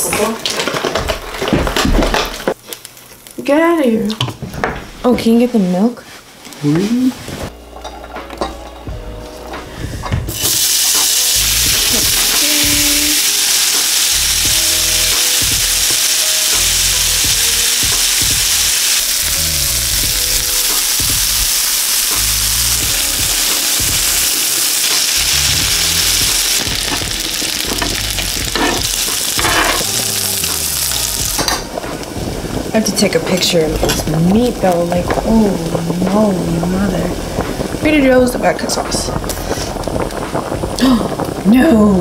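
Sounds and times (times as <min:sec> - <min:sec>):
meat sizzling in frying pan: 0:10.3 - 0:41.5.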